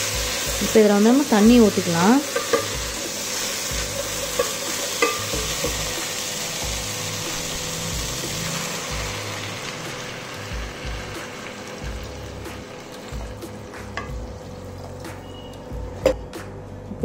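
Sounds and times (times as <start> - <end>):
frying sizzle: 0.0 - 16.0.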